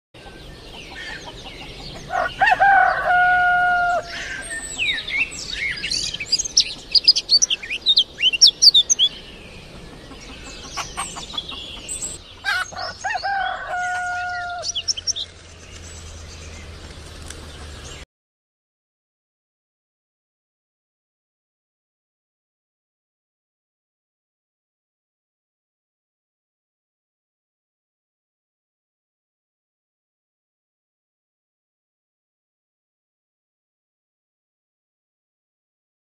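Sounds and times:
small birds chirping: 0.2s - 3.1s, 3.9s - 18.0s
rooster crowing: 2.0s - 5.0s, 12.4s - 15.3s.

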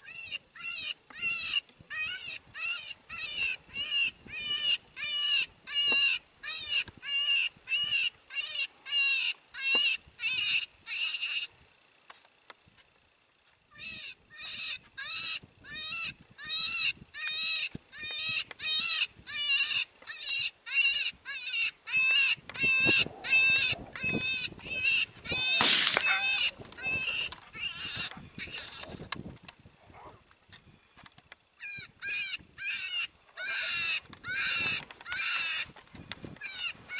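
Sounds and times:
electronic animal distress cry: 0.0s - 11.5s, 13.7s - 29.1s, 31.6s - 36.9s.

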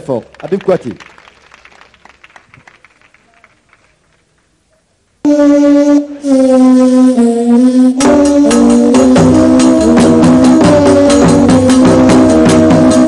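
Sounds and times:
band playing with fast beat: 8.0s - 13.0s.

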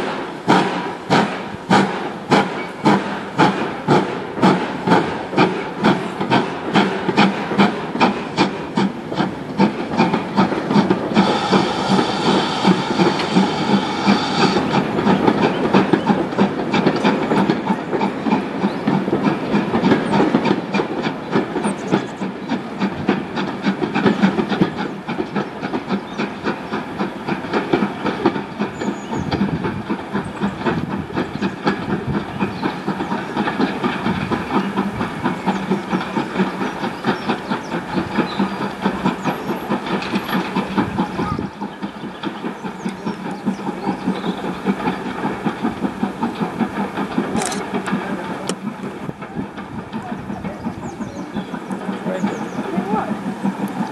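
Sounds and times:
steam hiss: 0.0s - 53.9s
steam locomotive exhaust beats: 0.0s - 53.9s
train wheels clicking over rail joints: 0.0s - 53.9s.

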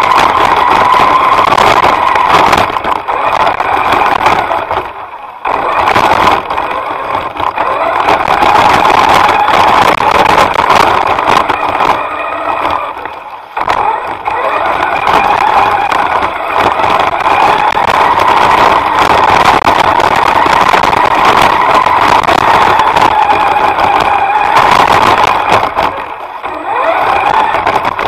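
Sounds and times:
electric motors whining: 0.0s - 28.0s.

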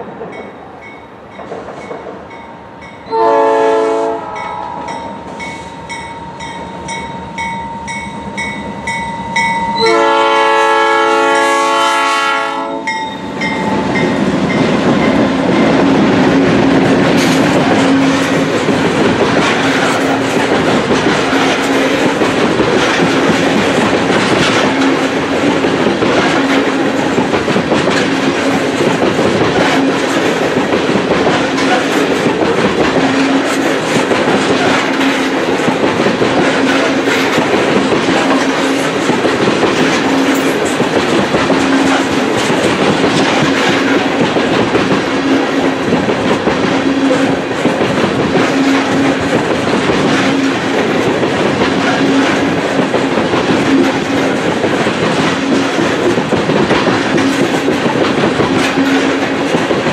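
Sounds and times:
train rumbling: 0.0s - 59.9s
locomotive horn blast: 3.1s - 5.2s, 9.8s - 13.0s
wheel clickety-clack: 12.9s - 59.9s.

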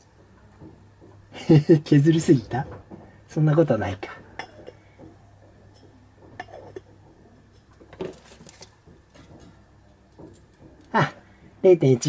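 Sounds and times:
light metallic clicks and clinks: 4.4s - 10.9s.

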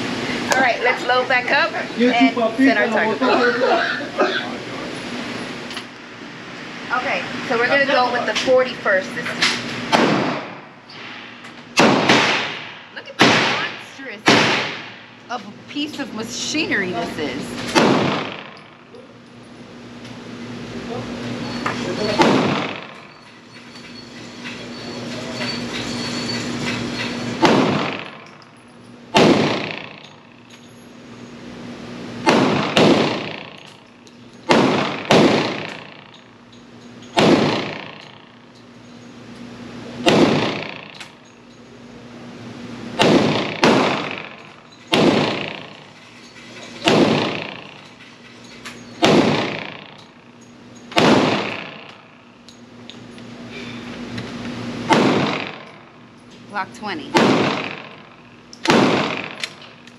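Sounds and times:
pistol shots echoing indoors: 9.9s - 15.0s, 17.6s - 18.6s, 22.2s - 23.1s, 27.4s - 28.3s, 29.1s - 30.1s, 32.2s - 33.7s, 34.5s - 36.2s, 37.1s - 38.4s, 40.0s - 41.1s, 43.0s - 45.9s, 46.8s - 47.8s, 49.0s - 50.2s, 50.9s - 52.2s, 54.9s - 55.9s, 57.1s - 59.8s.

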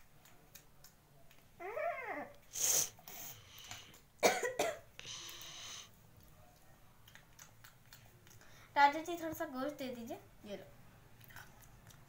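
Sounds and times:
child coughing: 4.2s - 4.9s.

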